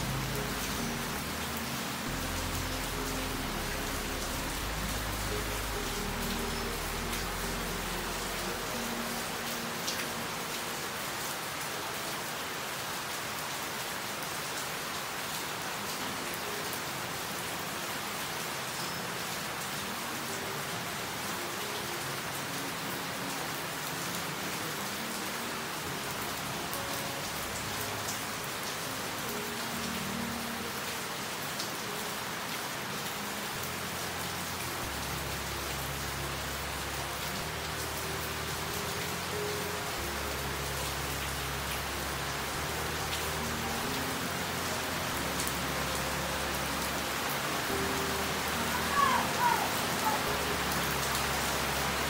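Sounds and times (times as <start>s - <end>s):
steady rain: 0.0s - 52.0s.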